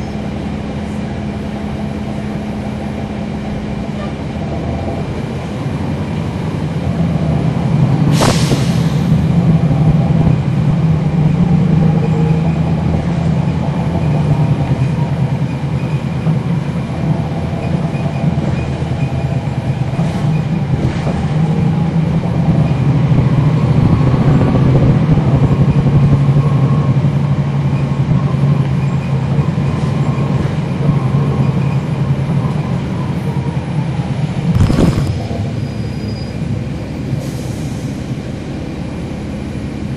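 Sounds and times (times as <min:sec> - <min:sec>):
bus diesel engine drone: 0:00.0 - 0:39.9
transmission whine: 0:34.4 - 0:36.3.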